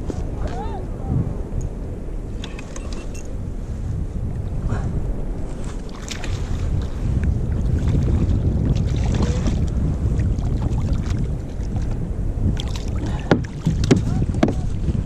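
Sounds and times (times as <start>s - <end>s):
wind buffeting microphone: 0.0s - 15.0s
water sloshing against kayak hull: 4.2s - 15.0s
sharp knocks: 13.3s - 14.6s.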